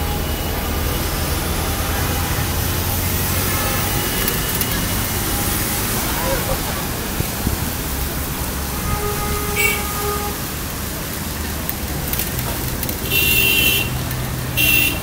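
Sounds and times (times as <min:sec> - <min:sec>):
traffic on wet road: 0:00.0 - 0:15.0
vehicle horn toots: 0:01.7 - 0:06.6, 0:08.6 - 0:10.6, 0:13.0 - 0:14.0, 0:14.6 - 0:15.0.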